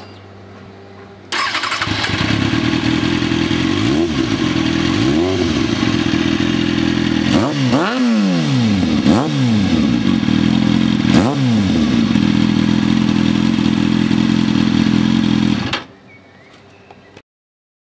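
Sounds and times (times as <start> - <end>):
quick throttle revs: 1.3 - 15.9
motorcycle engine idling: 1.4 - 7.8, 8.5 - 15.9.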